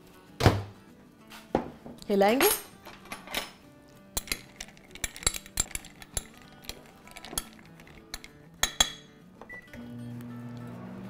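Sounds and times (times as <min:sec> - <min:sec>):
background music: 0:00.0 - 0:11.0
metal spoon clinking on glass: 0:04.2 - 0:09.1.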